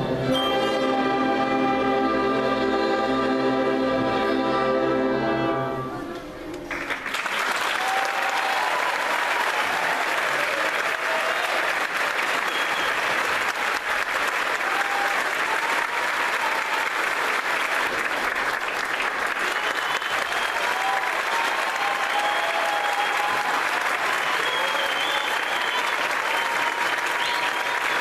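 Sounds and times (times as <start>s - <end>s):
audience applauding: 6.5s - 28.0s.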